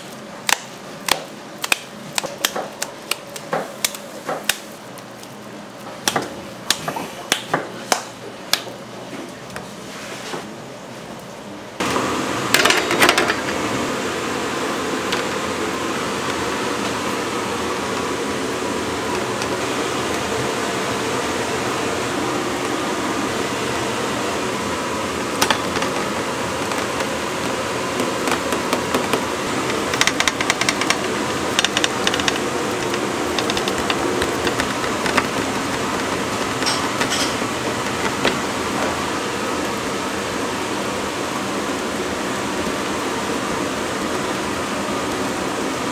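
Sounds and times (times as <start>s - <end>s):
motor-driven machine humming: 11.8s - 45.9s.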